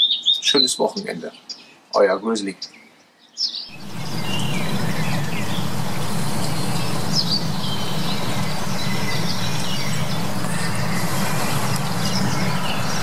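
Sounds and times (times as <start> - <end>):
small birds chirping: 0.0 - 13.0
low outdoor rumble: 3.7 - 13.0.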